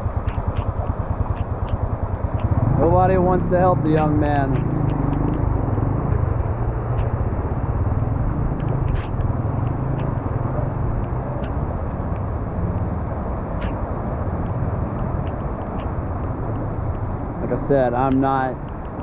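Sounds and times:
car engines rumbling: 0.0s - 19.0s
faint clicks: 0.2s - 2.6s, 3.9s - 5.6s, 8.5s - 10.4s, 11.0s - 17.2s, 18.0s - 19.0s.

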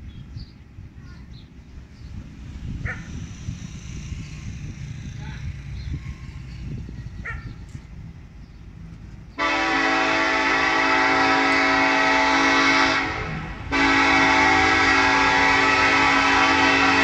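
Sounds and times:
locomotive horn blasts: 9.4s - 17.0s.

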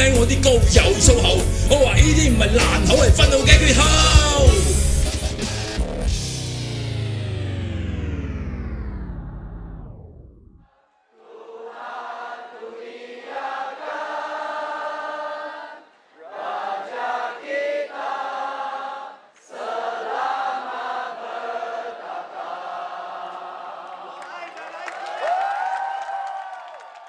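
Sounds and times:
crowd chanting in unison: 10.9s - 24.3s.

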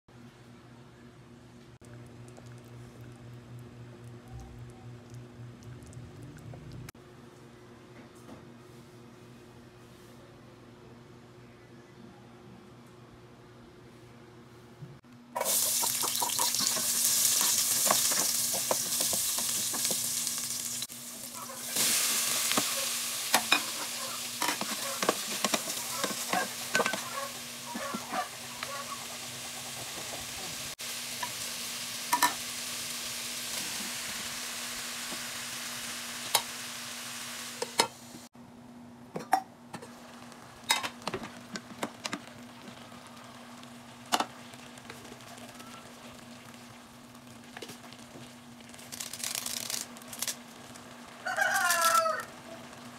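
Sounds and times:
low hum: 0.2s - 7.8s
chicken sizzling in a pot: 15.4s - 38.3s, 39.8s - 52.9s.

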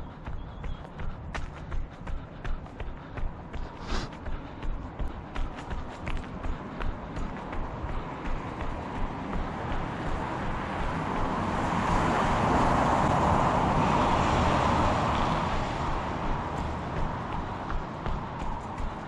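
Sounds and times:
road vehicle passing by: 3.9s - 19.0s
runner's footfalls: 16.5s - 19.0s.

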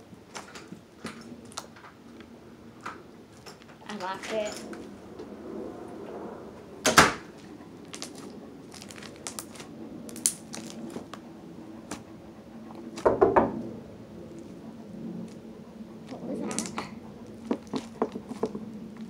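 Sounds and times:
slime squelches: 7.4s - 11.1s
slime crackling pops: 8.8s - 10.9s.

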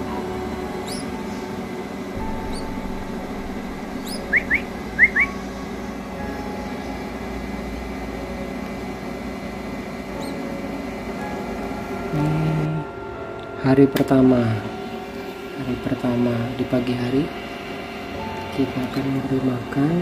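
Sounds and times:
steady background hum: 0.0s - 20.0s
chick cheeping: 0.8s - 1.2s, 4.0s - 5.4s.

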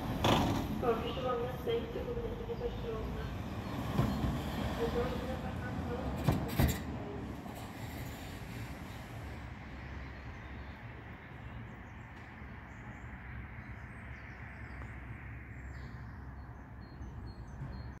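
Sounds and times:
train low hum and rumble: 0.0s - 18.0s
small birds chirping: 0.9s - 5.7s.

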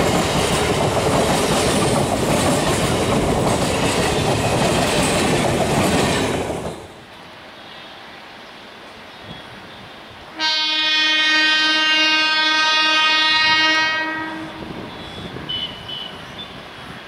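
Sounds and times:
train running noise: 0.0s - 17.0s
train horn blast: 10.3s - 16.2s.

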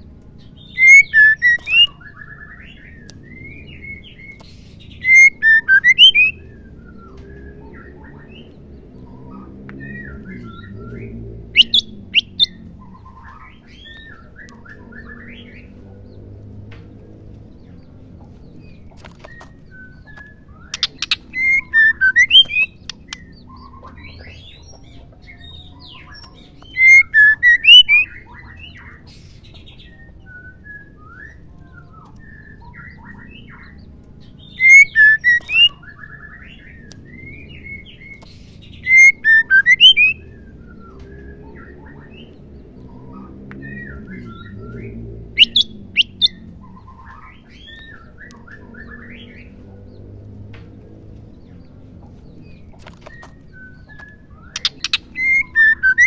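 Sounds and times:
soft bird chirps: 0.0s - 56.0s
bird calling sharp notes: 0.6s - 4.4s, 5.0s - 7.0s, 9.8s - 15.6s, 19.3s - 24.2s, 26.2s - 28.5s, 34.5s - 40.8s, 43.7s - 49.5s, 53.2s - 56.0s.

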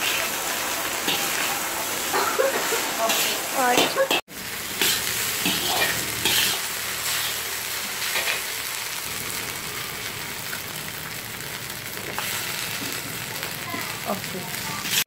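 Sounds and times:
metal spatula scraping wok: 0.0s - 8.8s, 14.6s - 15.0s
rice sizzling in a wok: 0.0s - 15.0s.

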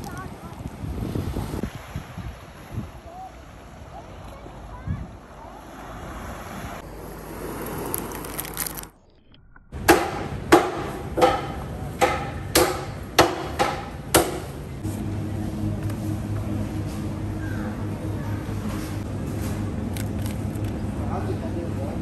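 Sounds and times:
surf: 0.0s - 7.9s
wind: 0.0s - 22.0s
cleaver chopping meat on wood: 9.9s - 14.5s.

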